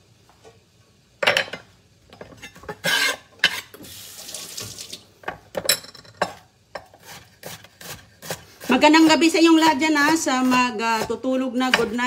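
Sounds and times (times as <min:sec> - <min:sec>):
water running from faucet: 0:03.8 - 0:05.1.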